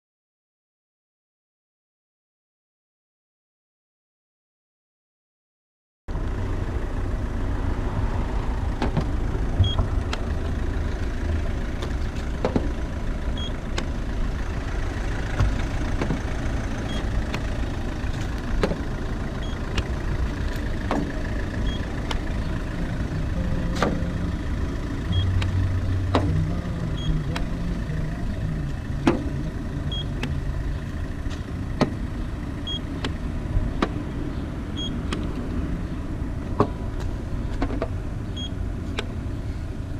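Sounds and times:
steady low rumble: 6.1 - 39.9
short high beep: 25.1 - 25.4, 26.6 - 27.3.

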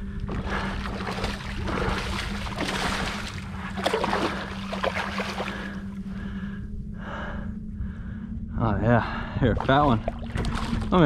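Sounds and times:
water splashing and sloshing: 0.0 - 6.4, 9.4 - 11.0
steady low hum: 0.0 - 11.0
fish thrashing at surface: 0.3 - 5.7, 9.6 - 11.0.

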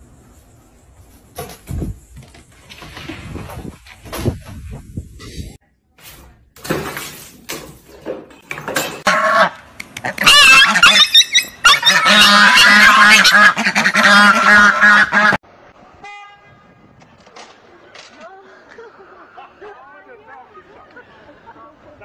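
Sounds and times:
goose honking: 9.0 - 15.4.

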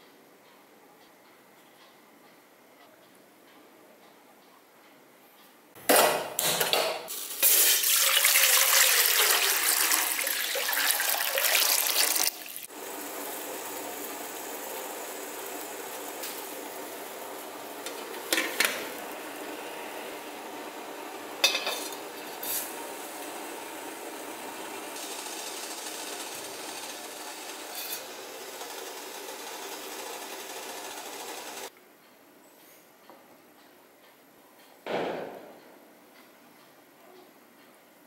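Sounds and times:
water running into a metal pot: 7.1 - 19.1
metal pot and lid clinking: 21.4 - 22.7.

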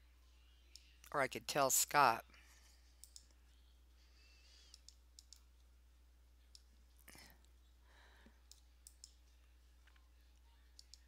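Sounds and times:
low electrical hum: 0.0 - 11.0
computer mouse clicks: 3.0 - 3.4, 4.6 - 5.6, 8.4 - 9.2, 10.8 - 11.0.

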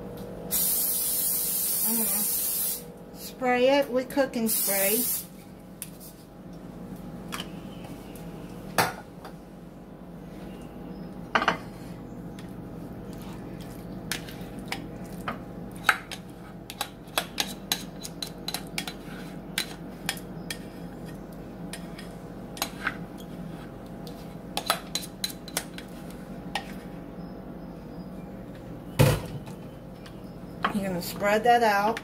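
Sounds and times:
steady low hum: 0.0 - 32.0
utensil scraping a bowl: 15.7 - 25.4.

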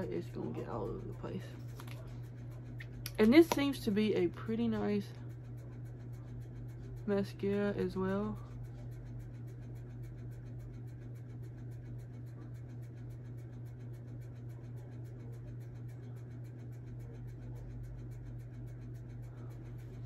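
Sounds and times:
low background hum: 0.0 - 20.0.

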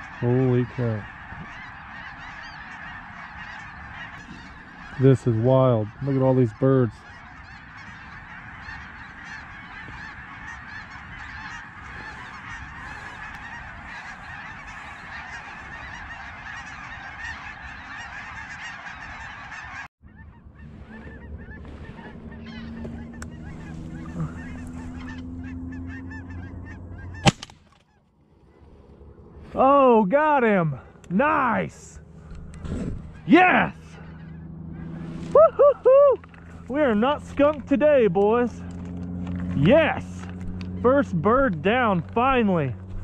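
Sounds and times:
geese honking: 0.0 - 43.0
shotgun shot: 27.2 - 27.6.

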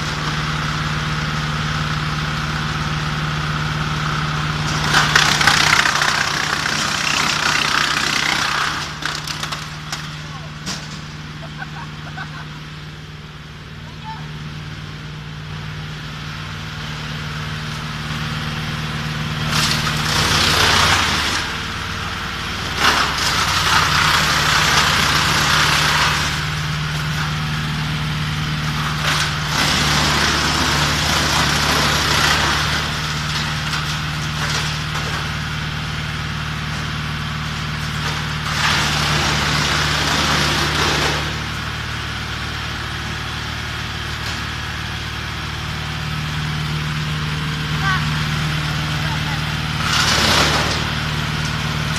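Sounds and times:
wood chipper running: 0.0 - 51.9
loud wood chipping: 4.6 - 10.4, 19.4 - 21.6, 22.7 - 26.6, 28.8 - 35.1, 38.4 - 41.5, 49.8 - 51.0.

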